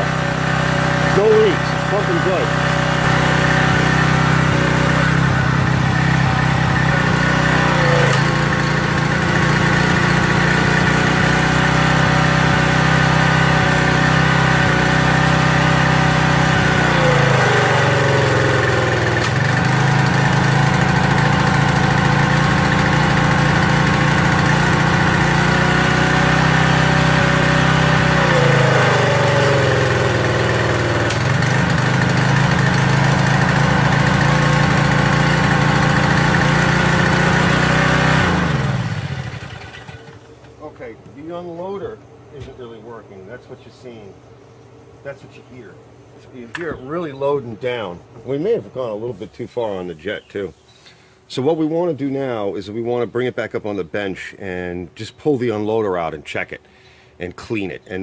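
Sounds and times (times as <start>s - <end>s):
pressure washer engine running: 0.0s - 41.0s.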